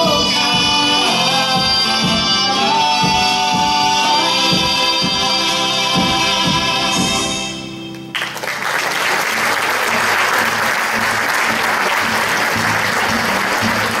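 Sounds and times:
audience applause: 8.1s - 14.0s
acoustic folk ensemble chord: 9.7s - 14.0s.

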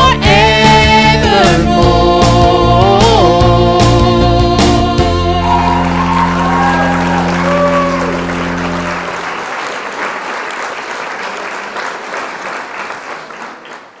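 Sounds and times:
song ending on held chord: 0.4s - 9.8s
audience applause: 5.4s - 14.0s.

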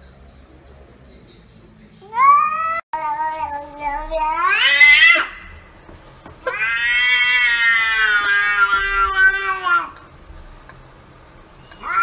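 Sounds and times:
cat meowing: 2.0s - 5.6s, 6.5s - 10.0s, 11.8s - 12.0s.

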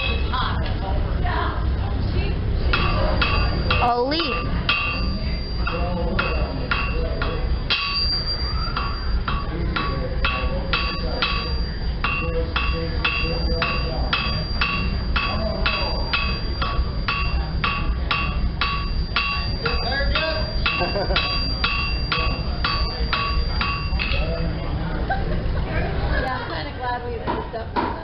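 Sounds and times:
hammer ringing on anvil: 2.7s - 24.4s.

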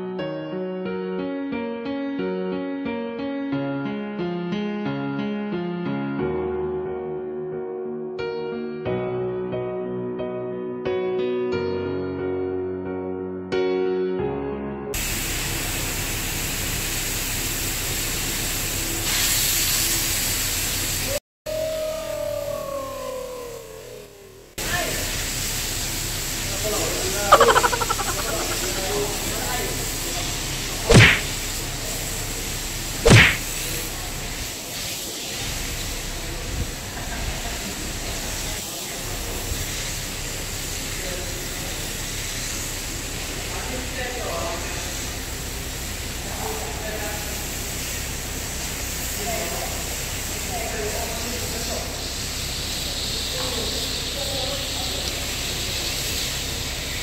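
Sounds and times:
hose spraying water on tiles: 15.0s - 21.2s, 29.7s - 57.0s
loud short whoosh: 27.3s - 28.8s, 30.9s - 31.3s, 33.0s - 33.5s.

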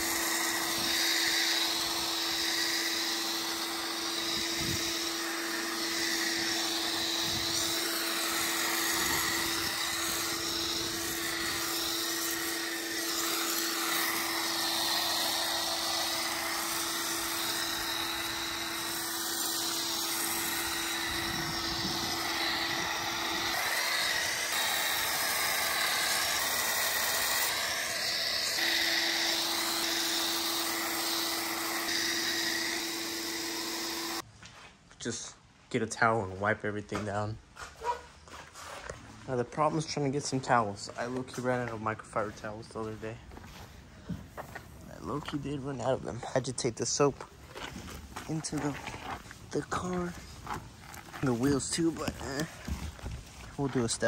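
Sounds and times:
pressure washer motor humming: 0.0s - 34.2s, 48.2s - 54.0s.

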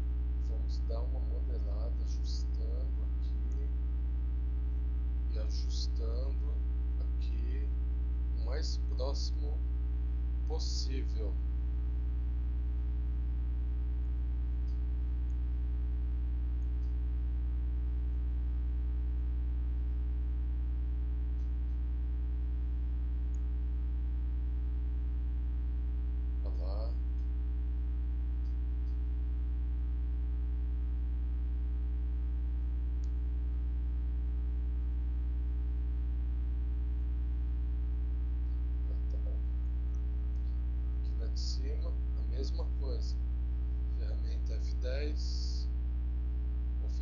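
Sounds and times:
electrical mains hum: 0.0s - 47.0s.

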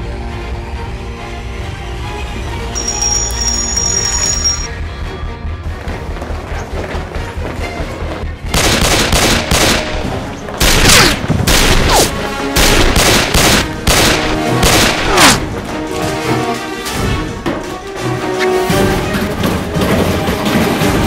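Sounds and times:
dramatic background music: 0.0s - 21.0s
rapid gunfire: 8.5s - 15.4s.

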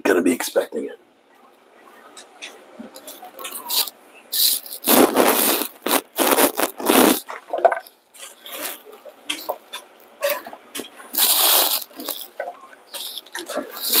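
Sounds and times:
kitchen scraping and rustling: 3.0s - 14.0s.

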